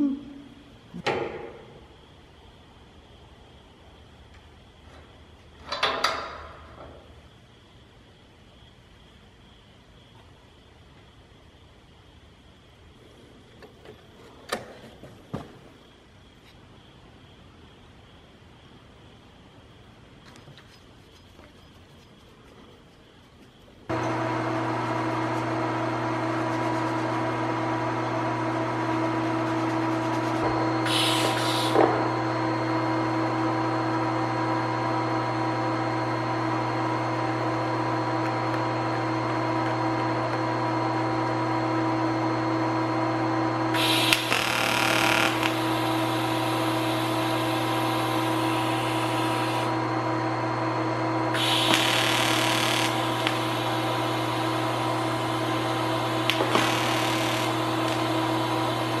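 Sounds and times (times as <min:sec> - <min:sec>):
machine hum: 0:23.4 - 0:59.0
welding arc hiss and crackle: 0:23.9 - 0:32.2, 0:43.7 - 0:49.7, 0:51.4 - 0:59.0.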